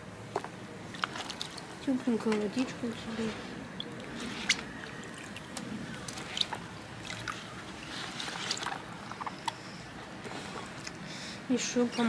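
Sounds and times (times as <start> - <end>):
small wet clicks and squishes: 0.3 - 9.8
water sloshing in plastic tub: 0.3 - 11.0.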